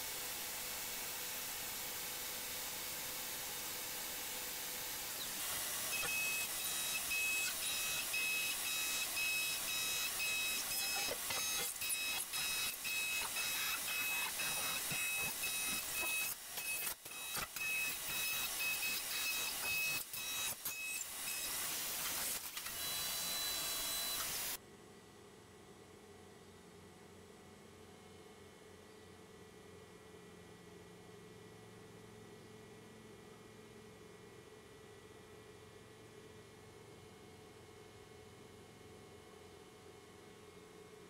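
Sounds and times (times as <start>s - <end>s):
high-pitched machine whine: 0.0s - 24.6s.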